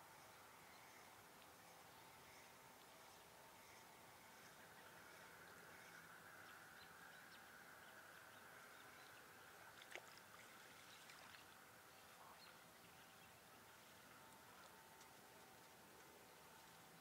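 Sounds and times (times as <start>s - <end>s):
faint background hiss: 0.0s - 17.0s.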